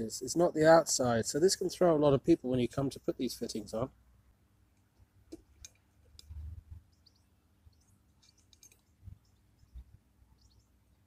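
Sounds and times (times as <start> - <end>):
faint clicks: 4.8 - 7.0, 7.8 - 10.6
faint high chirps: 6.4 - 11.0.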